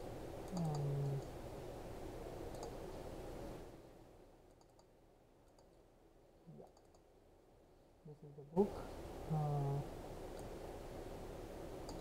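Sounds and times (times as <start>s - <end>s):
room hiss: 0.0s - 12.0s
computer mouse clicking: 0.4s - 1.3s, 2.5s - 2.8s, 4.5s - 5.8s, 6.6s - 7.1s, 10.3s - 10.6s.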